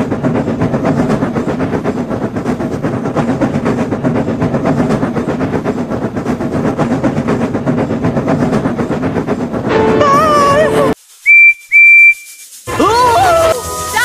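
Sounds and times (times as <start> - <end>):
wheel clatter: 0.0 - 9.7
steam locomotive chuffing: 0.0 - 10.6.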